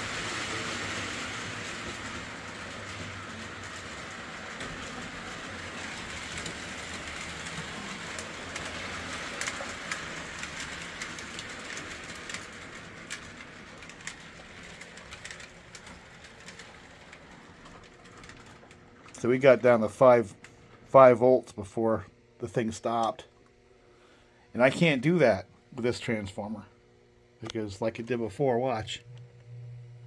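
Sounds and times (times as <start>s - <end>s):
toy train motor whirring: 0.0s - 19.3s
wheels clicking on rails: 0.0s - 21.1s.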